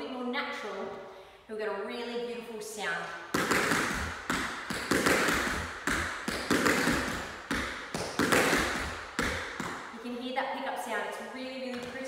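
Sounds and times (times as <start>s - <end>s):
tap shoes striking hard floor: 3.3s - 9.9s, 11.7s - 12.0s.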